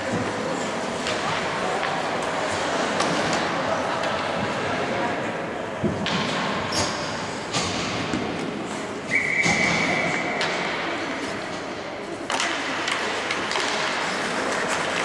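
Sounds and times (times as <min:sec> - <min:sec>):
hockey sticks and skates clattering: 0:00.0 - 0:15.0
whistle blast: 0:09.1 - 0:10.4.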